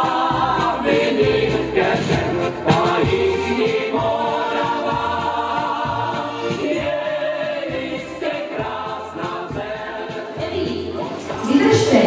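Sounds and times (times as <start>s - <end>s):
group singing over a beat: 0.0s - 12.0s.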